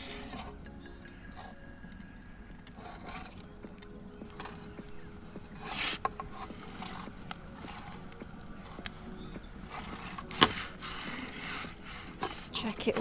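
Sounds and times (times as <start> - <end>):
metal peel scraping stone: 5.5 - 8.0.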